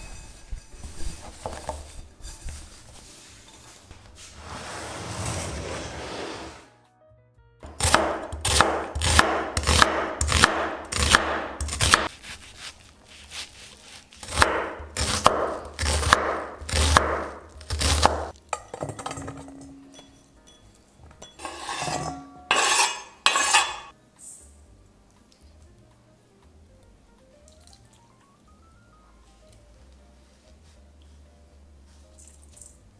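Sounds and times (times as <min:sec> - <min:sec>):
scraping and rustling: 0:00.0 - 0:06.7
knife chopping on wooden board: 0:07.6 - 0:12.7, 0:14.2 - 0:18.3.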